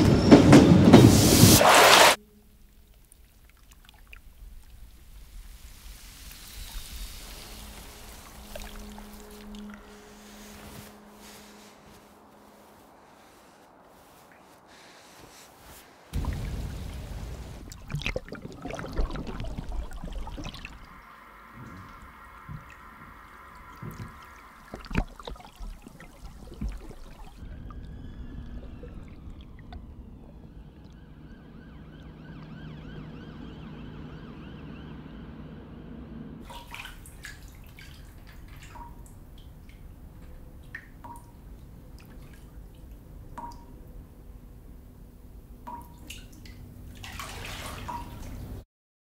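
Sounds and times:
water pouring and dripping: 1.6s - 33.8s, 36.4s - 44.1s, 45.6s - 48.6s
low hum with sliding pitches: 16.2s - 36.5s.

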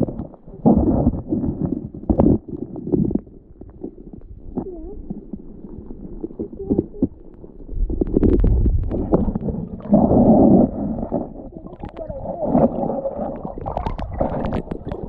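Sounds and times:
underwater stream rumble and gurgling: 0.0s - 15.0s.

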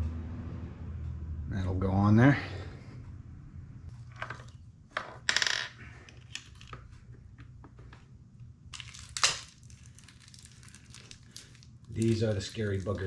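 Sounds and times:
small metal parts clinking: 8.7s - 13.0s.

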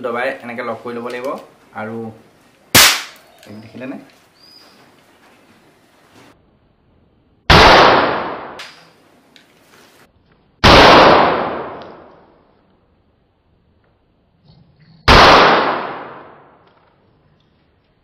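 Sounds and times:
toy gun bangs: 2.8s - 3.2s.

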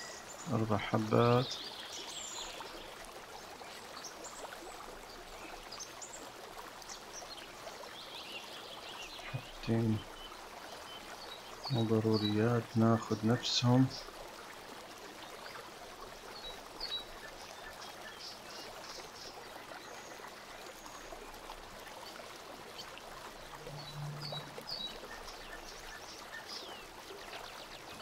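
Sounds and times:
brief low hum: 23.4s - 25.1s.

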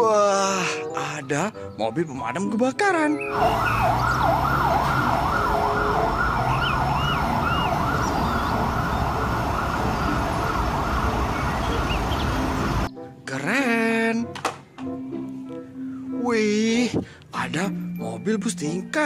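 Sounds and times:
fire engine siren wailing: 3.3s - 12.9s
street traffic rumble: 3.3s - 12.9s.

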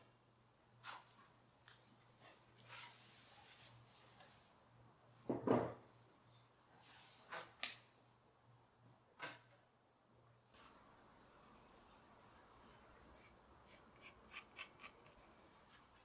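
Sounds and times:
stool knocking on wooden bench: 5.3s - 5.8s.

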